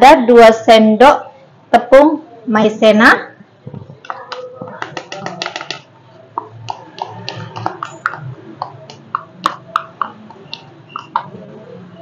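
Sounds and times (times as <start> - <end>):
plastic scoop clicking on bowl: 4.0 - 11.3.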